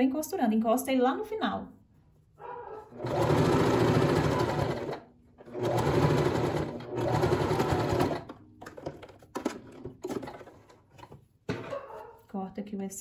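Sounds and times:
electric sewing machine stitching: 3.0 - 8.4.

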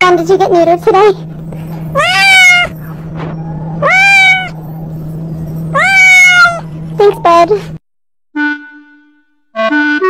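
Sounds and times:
steady low hum: 0.0 - 7.8
cat meowing loudly: 2.0 - 2.8, 3.4 - 4.6, 5.7 - 6.7.

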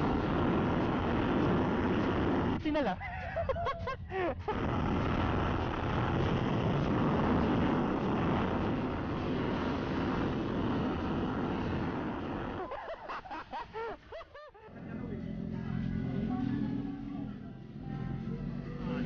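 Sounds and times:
rushing wind: 4.5 - 12.6.

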